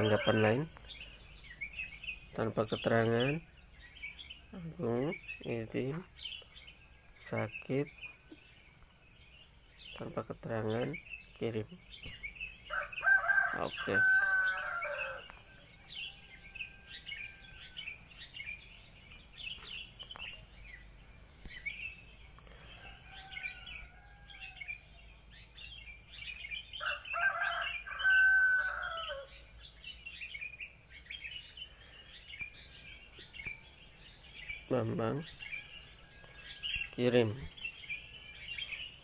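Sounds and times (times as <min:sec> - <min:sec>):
rooster crowing: 0:00.0 - 0:00.8, 0:12.7 - 0:18.0, 0:22.7 - 0:25.0, 0:26.8 - 0:29.4
high insect trill: 0:00.0 - 0:39.0
small birds chirping: 0:00.0 - 0:39.0.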